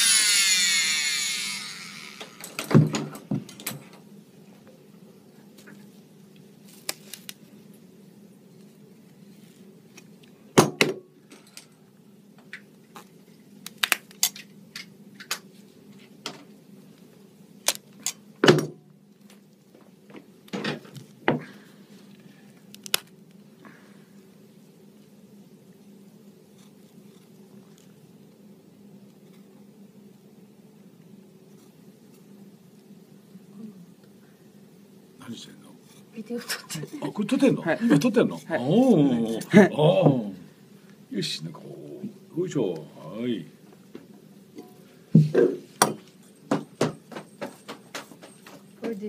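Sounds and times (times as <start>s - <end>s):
electric saw winding down: 0.0s - 2.7s
cast cracking and clicking: 12.5s - 15.5s, 22.7s - 23.4s.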